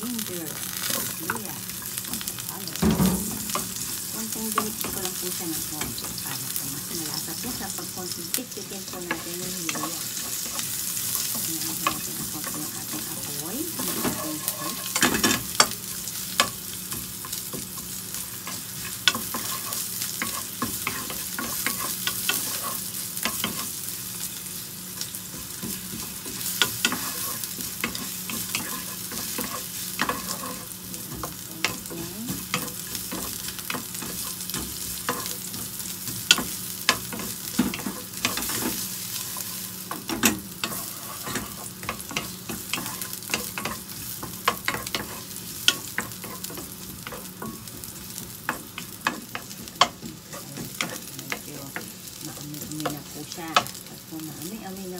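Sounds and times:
ginger sizzling in hot oil: 0.0 - 54.9
wooden spatula scraping a pan: 9.1 - 15.7, 17.2 - 23.8, 25.3 - 53.1.

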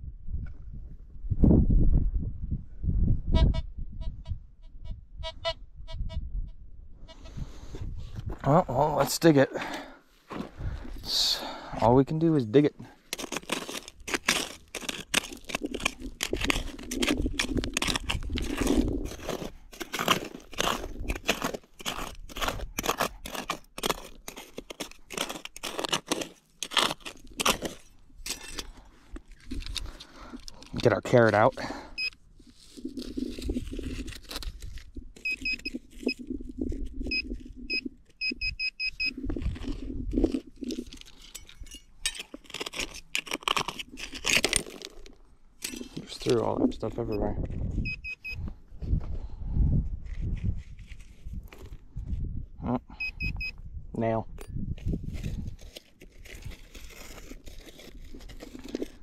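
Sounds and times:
dirt scraping and crunching: 7.1 - 52.4, 54.0 - 59.0
hand shovel digging into soil: 11.9 - 47.1, 54.7 - 59.0
short high beeps: 35.2 - 35.8, 37.1 - 39.2, 47.8 - 48.4, 53.0 - 53.6
sharp clinks and rattles: 40.2 - 46.3.

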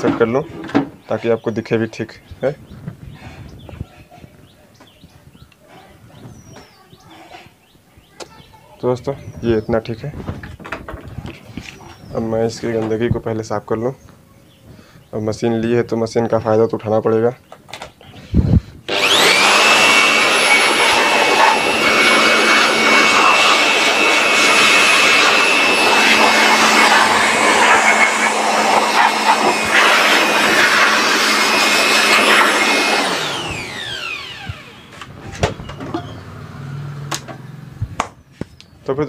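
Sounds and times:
electric air blower whining: 18.3 - 38.0.

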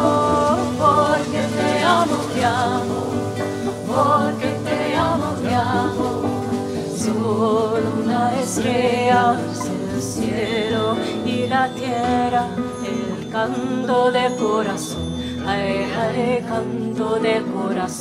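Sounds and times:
strummed acoustic guitar: 0.0 - 18.0
voices singing: 0.0 - 18.0.

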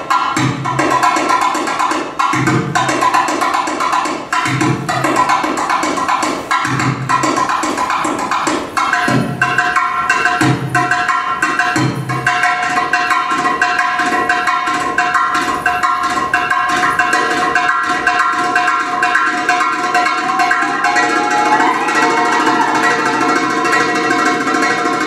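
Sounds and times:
goblet drum quick rhythm: 0.0 - 25.0
held melodic tone: 19.6 - 25.0
melody sliding upward: 20.3 - 24.0.

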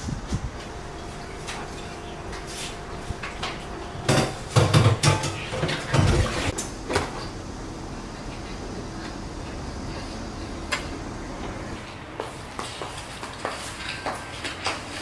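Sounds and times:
dishes and cutlery clattering: 3.2 - 6.6.

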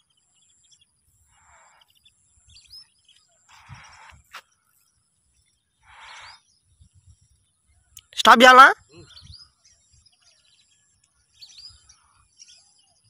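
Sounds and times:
bird chirps: 0.0 - 13.0
soft hissing puffs: 3.5 - 4.6, 5.8 - 6.5.

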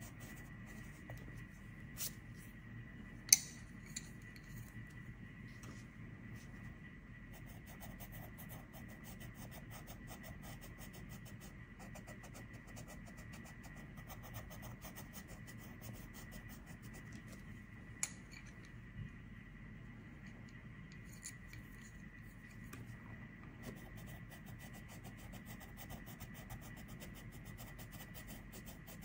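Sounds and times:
pencil scratching on paper: 0.0 - 1.0, 7.3 - 17.1, 23.6 - 29.0.

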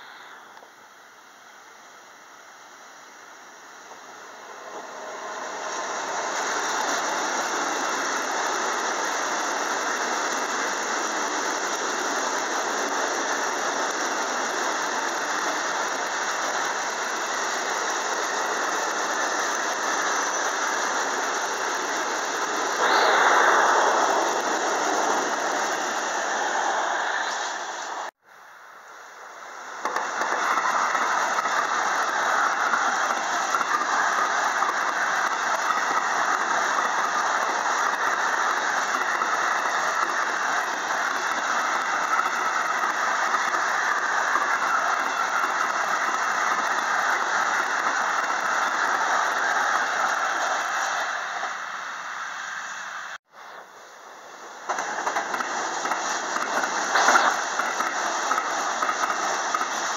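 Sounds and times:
train wheels rushing on rails: 3.0 - 28.2, 29.3 - 59.9
high wheel squeal: 22.8 - 28.0.

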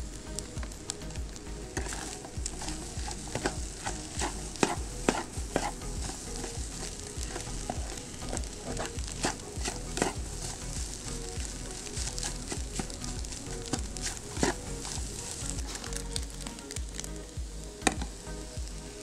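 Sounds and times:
eggs sizzling in a metal pot: 0.0 - 19.0
spatula scraping metal pot: 1.8 - 16.1.

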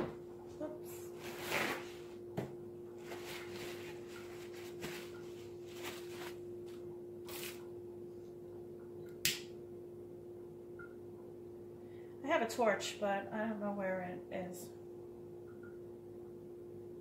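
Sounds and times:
steady hum: 0.0 - 17.0
faint rustling and handling: 3.0 - 7.6.

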